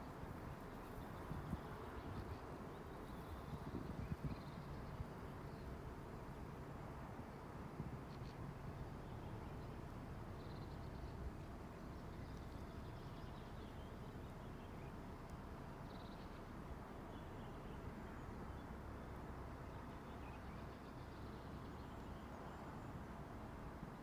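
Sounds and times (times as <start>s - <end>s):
wind rumble on microphone: 0.1s - 5.9s, 7.6s - 8.6s
distant small birds chirping: 8.0s - 24.0s.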